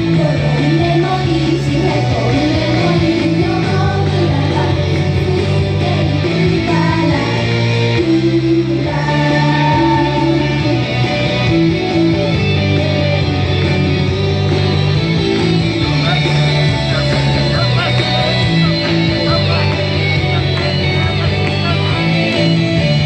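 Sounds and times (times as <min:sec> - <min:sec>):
young women singing pop song: 0:00.0 - 0:11.1
electric guitar: 0:00.0 - 0:23.0
steady bass: 0:00.0 - 0:23.0.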